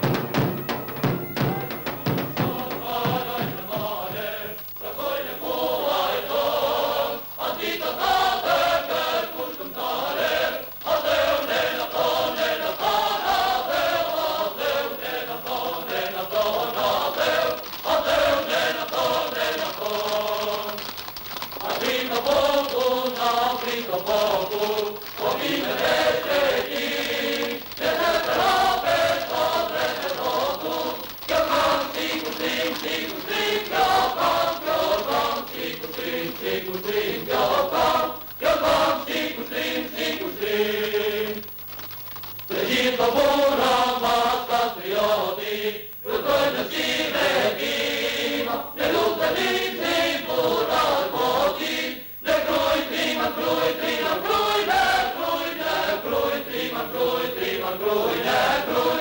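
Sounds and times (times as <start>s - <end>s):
choir singing a chant: 0.0s - 21.0s, 21.6s - 41.5s, 42.5s - 59.0s.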